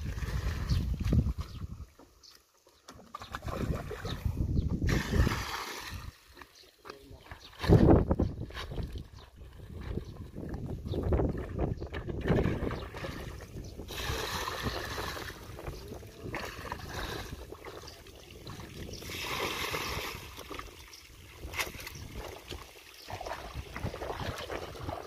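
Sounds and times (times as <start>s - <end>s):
sloshing and wading in water: 0.0s - 25.0s
water pouring splash: 4.9s - 6.2s.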